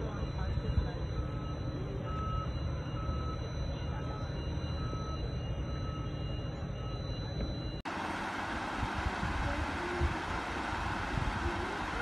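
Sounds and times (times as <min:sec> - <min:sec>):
warning beeper: 0:00.0 - 0:07.8.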